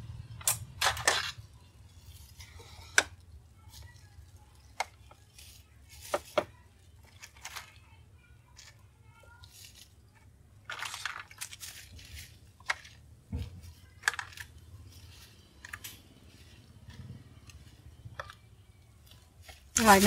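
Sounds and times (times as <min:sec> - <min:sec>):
plastic bag rustling: 0:03.6 - 0:20.0.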